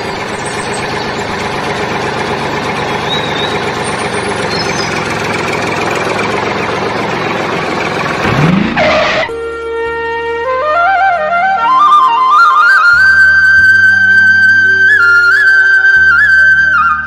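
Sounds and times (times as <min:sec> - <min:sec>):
tractor engine idling: 0:00.0 - 0:09.3
rising sweep: 0:08.1 - 0:09.4.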